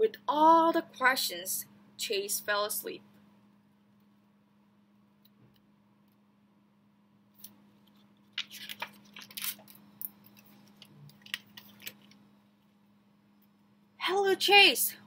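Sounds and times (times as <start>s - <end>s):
paper pages rustling: 7.4s - 12.2s.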